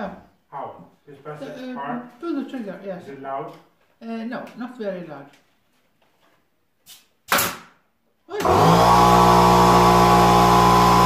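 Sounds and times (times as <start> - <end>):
nail gun firing air blast: 7.3 - 7.8
air compressor motor running: 8.4 - 11.0.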